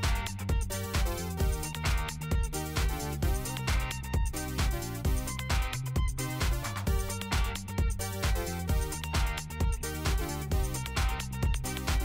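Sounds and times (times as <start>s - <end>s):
upbeat electronic music: 0.0s - 12.0s.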